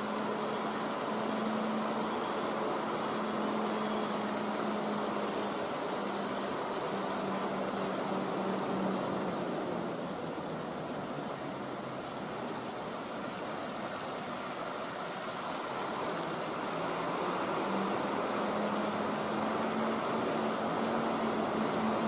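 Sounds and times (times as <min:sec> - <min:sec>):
idle train equipment humming: 0:00.0 - 0:22.0
low steady tone: 0:00.0 - 0:22.0.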